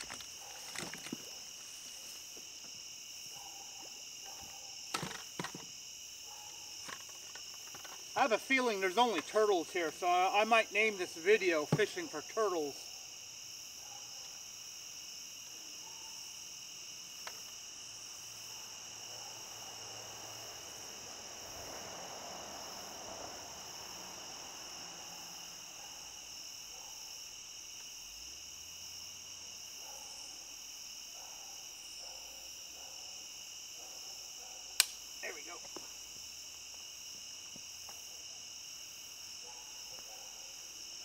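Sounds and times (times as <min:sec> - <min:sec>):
crickets and insects trilling: 0:00.0 - 0:41.0
faint click: 0:34.8 - 0:35.0.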